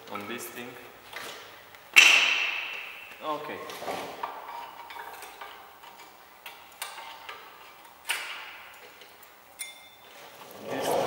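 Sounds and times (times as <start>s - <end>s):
ringing metal clink: 9.6s - 10.2s.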